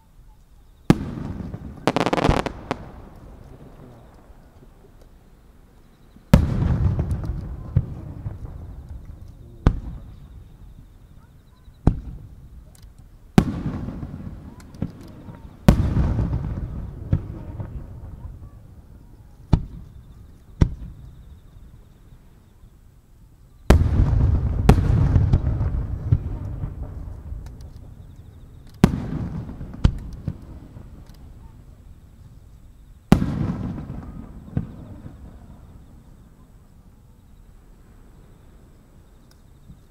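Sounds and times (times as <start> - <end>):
fireworks booming with echo: 0.8 - 21.8, 23.6 - 38.3
firework shells bursting: 0.9 - 5.2, 23.7 - 31.6.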